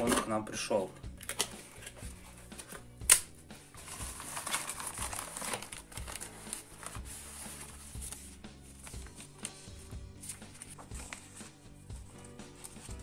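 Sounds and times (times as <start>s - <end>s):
cardboard box rustling: 3.8s - 9.2s.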